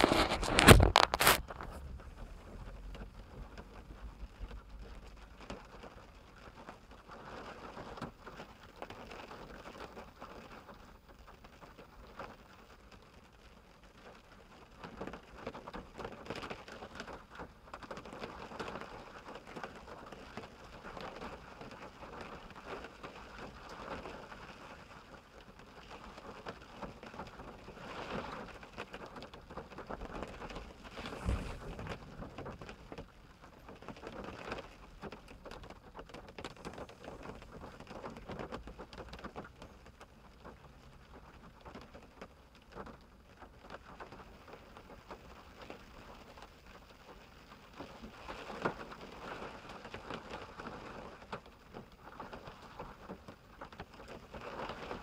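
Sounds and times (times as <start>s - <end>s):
rain on car windshield and roof: 0.0s - 55.0s
sharp deep thud: 31.0s - 32.4s.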